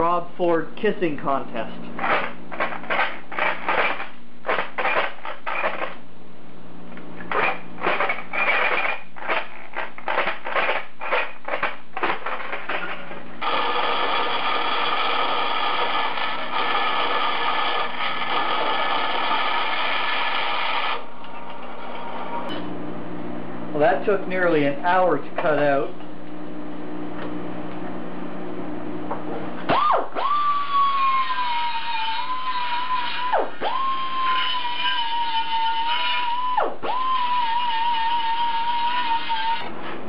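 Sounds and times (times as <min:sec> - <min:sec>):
jigsaw cutting steel sheet: 0:02.0 - 0:06.0, 0:07.3 - 0:22.0
band saw whining through steel: 0:13.4 - 0:22.5, 0:29.7 - 0:39.7.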